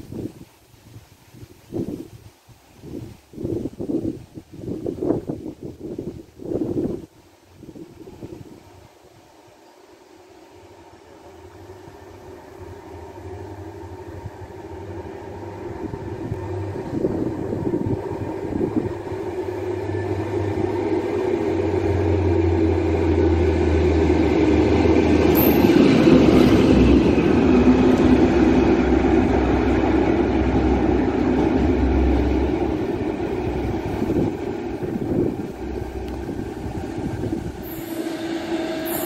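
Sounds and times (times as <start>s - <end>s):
locomotive running: 8.4s - 39.0s
high squeal: 25.3s - 26.8s, 37.0s - 39.0s.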